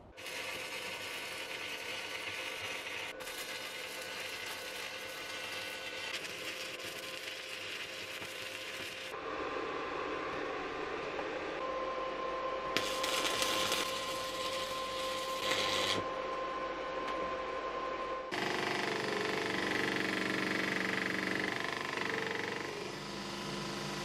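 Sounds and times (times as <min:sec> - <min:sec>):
welding arc crackling: 0:00.2 - 0:09.2, 0:12.8 - 0:16.0.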